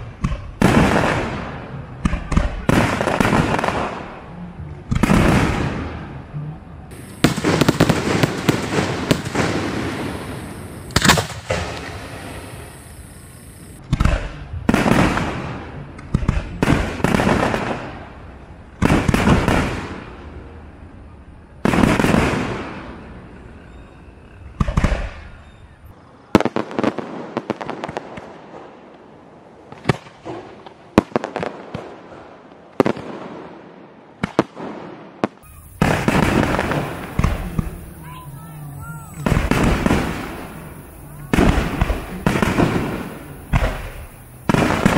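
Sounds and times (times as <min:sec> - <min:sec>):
firework shells bursting: 0:06.9 - 0:13.8, 0:35.4 - 0:44.9
sharp cracks and pops: 0:10.9 - 0:11.9.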